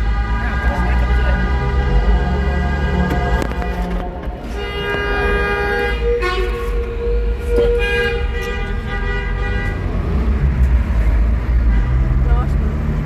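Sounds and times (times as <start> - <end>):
car horns blowing: 0.0 - 10.4
rumble of engines and tyres: 0.0 - 13.0.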